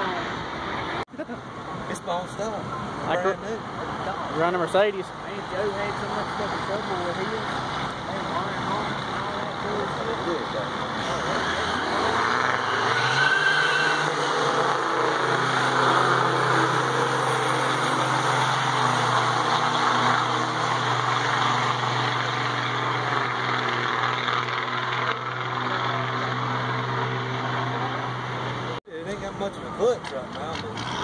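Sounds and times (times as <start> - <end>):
trucks racing at full throttle: 0.0 - 31.0.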